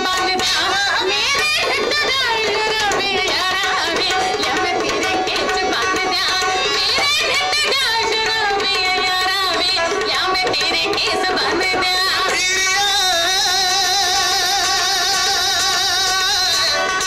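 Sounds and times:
drums and instruments: 0:00.0 - 0:17.0
woman singing: 0:00.0 - 0:17.0.

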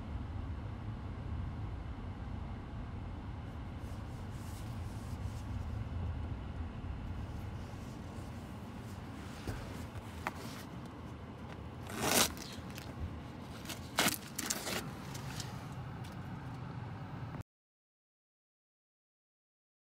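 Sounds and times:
car engine low rumble: 0:00.0 - 0:17.4
loud rustle: 0:11.5 - 0:15.8.

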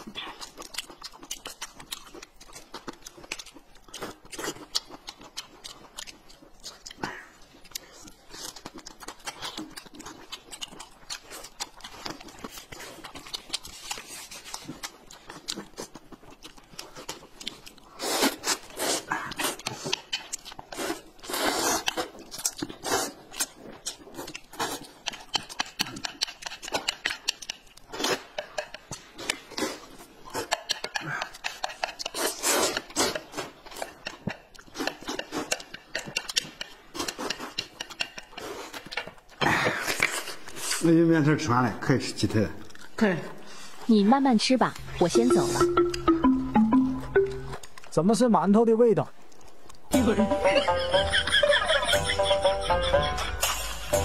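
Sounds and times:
chewing and mouth clicks: 0:00.0 - 0:41.3, 0:42.2 - 0:48.3, 0:48.9 - 0:50.0
loud slurping of noodles: 0:17.9 - 0:19.6, 0:20.7 - 0:22.2, 0:22.8 - 0:23.3, 0:32.1 - 0:33.5.

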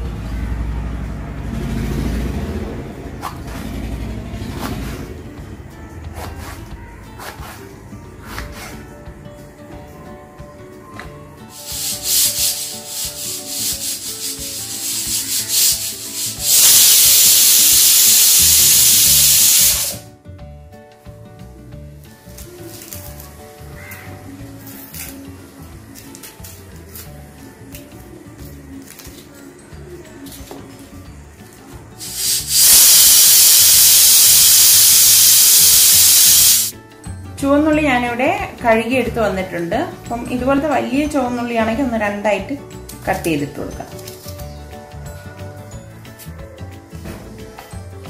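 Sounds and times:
pressure cooker steam hissing: 0:11.5 - 0:20.0, 0:32.0 - 0:36.7
papery onion skin rustling: 0:22.3 - 0:23.4, 0:24.6 - 0:25.3, 0:28.6 - 0:29.5.

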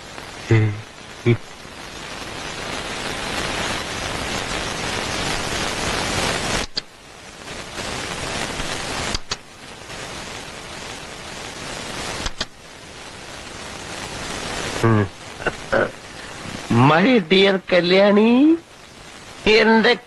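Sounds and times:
steady rushing hiss: 0:00.0 - 0:20.0
sharp click: 0:09.1 - 0:09.4, 0:12.2 - 0:12.5.

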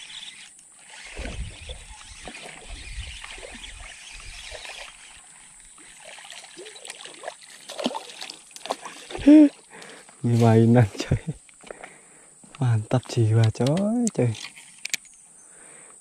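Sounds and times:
water sloshing and splashing: 0:00.8 - 0:10.0.

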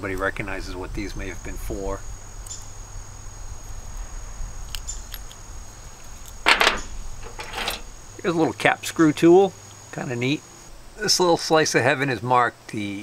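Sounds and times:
cricket trill: 0:00.1 - 0:11.9
metal hand tools clinking: 0:06.4 - 0:07.9.

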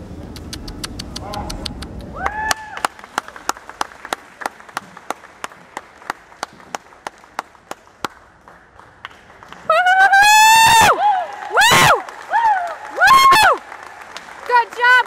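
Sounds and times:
tongue clicks: 0:00.2 - 0:02.2.

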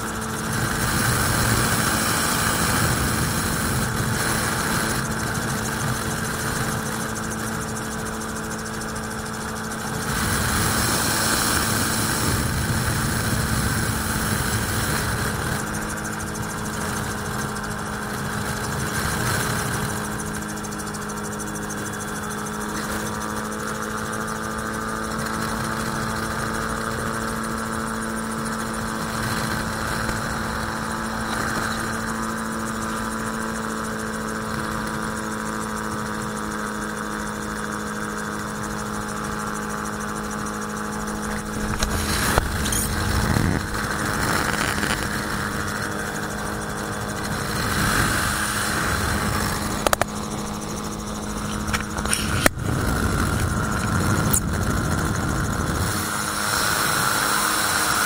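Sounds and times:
aircraft engine and propeller hum: 0:00.0 - 0:58.0
rushing airflow: 0:40.9 - 0:56.9.

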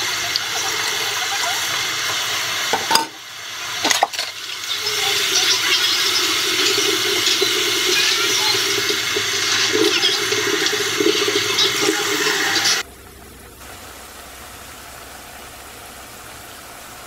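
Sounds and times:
faucet running into sink: 0:00.0 - 0:13.4
water running into a pot: 0:00.0 - 0:17.0
dishes knocking: 0:02.7 - 0:03.2.

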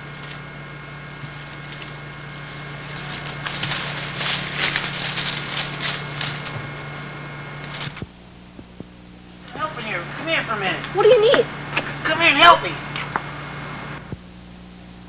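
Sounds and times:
leaves and branches rustling: 0:00.0 - 0:08.1
steady low hum: 0:00.0 - 0:15.0.

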